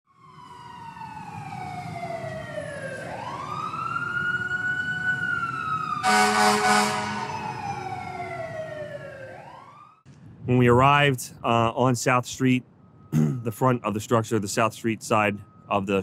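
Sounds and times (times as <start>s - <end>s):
fire engine siren wailing: 0.1s - 10.1s, 12.6s - 16.0s
loud horn blast: 6.0s - 7.5s.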